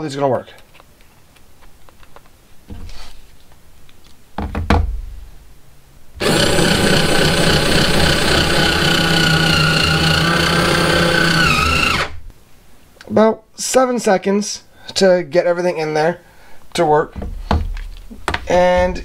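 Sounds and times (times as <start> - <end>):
electric screwdriver motor whine: 6.2 - 12.2
knocks and clicks: 17.1 - 19.0.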